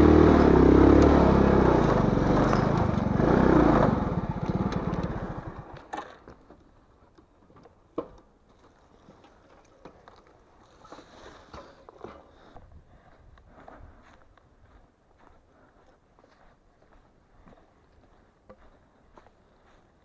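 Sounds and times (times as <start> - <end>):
footsteps crunching dry grass: 12.3 - 20.0.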